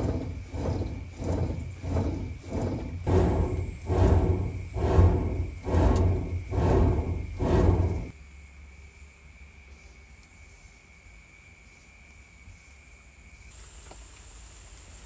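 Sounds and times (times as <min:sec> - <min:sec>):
bellows whooshing puffs: 0:00.0 - 0:08.1
fire gusting: 0:00.0 - 0:08.1.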